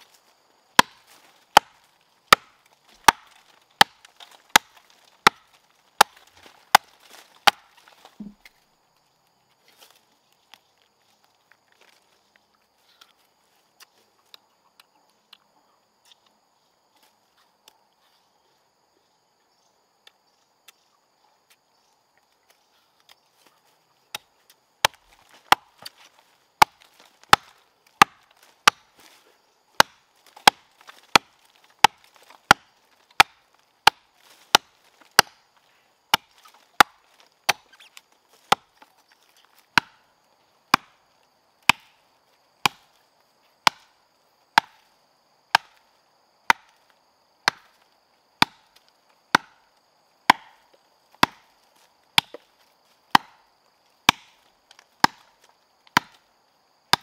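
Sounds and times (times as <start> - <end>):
blade chopping wood: 0.8 - 8.4, 24.1 - 29.0, 29.8 - 35.4, 36.1 - 38.8, 39.7 - 40.0, 40.7 - 41.0, 41.6 - 42.0, 42.6 - 42.9, 43.6 - 43.9, 44.6 - 44.8, 45.5 - 45.8, 46.5 - 46.8, 47.4 - 47.8, 48.4 - 49.6, 50.3 - 50.6, 51.2 - 51.5, 52.2 - 52.5, 53.1 - 53.4, 54.0 - 54.4, 55.0 - 55.3, 55.9 - 56.2.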